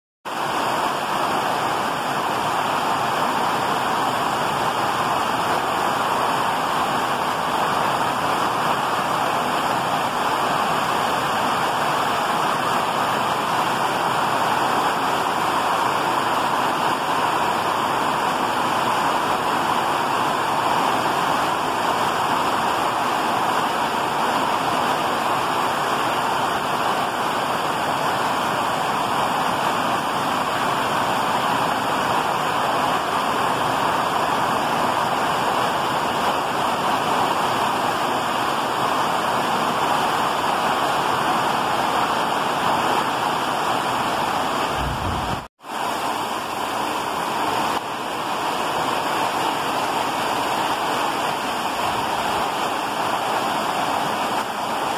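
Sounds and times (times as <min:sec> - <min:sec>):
heavy rain pouring: 0:00.3 - 0:54.9.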